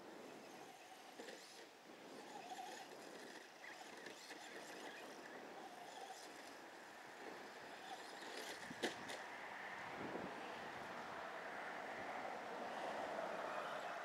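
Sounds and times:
electric toy truck motor whine: 0:00.0 - 0:09.3, 0:12.6 - 0:14.0.

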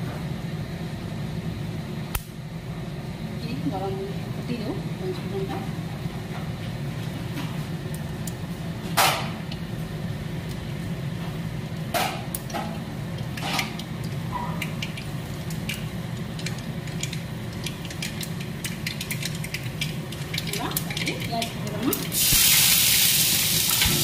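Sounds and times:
steady low hum: 0:00.0 - 0:22.4, 0:23.0 - 0:24.0
seeds crackling in hot oil: 0:10.3 - 0:24.0.

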